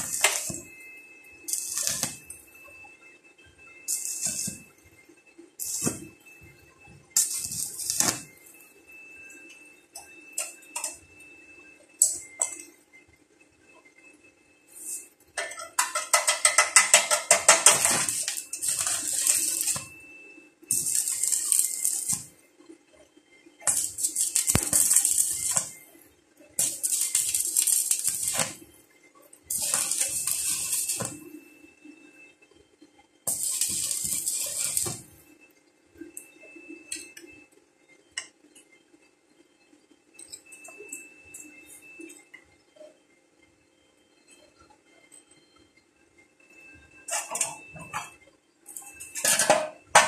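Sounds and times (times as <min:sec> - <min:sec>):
welding arc crackling and sizzling: 0:00.0 - 0:13.2, 0:14.6 - 0:37.5, 0:46.5 - 0:50.0.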